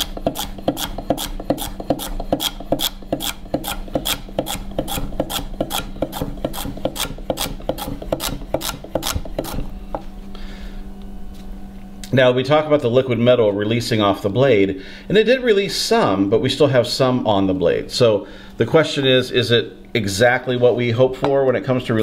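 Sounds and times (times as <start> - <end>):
knife chopping celery on board: 0.0 - 9.7.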